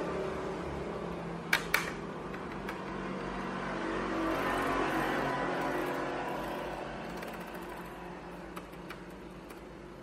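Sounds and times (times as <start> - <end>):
laptop keys clicking: 5.6 - 9.7.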